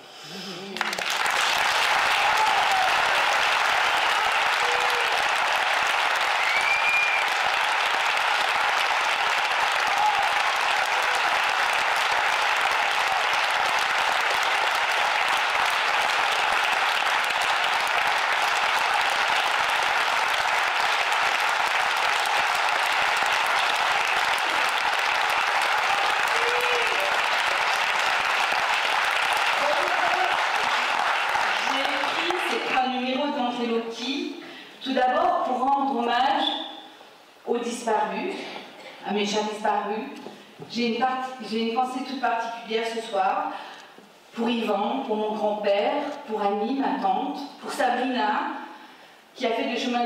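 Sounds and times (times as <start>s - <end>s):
audience applauding: 0.6s - 33.1s.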